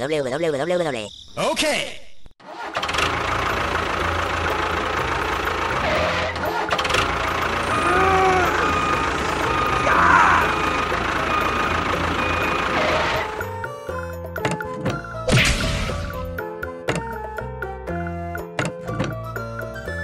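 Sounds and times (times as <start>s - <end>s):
tractor engine running: 2.6s - 13.7s.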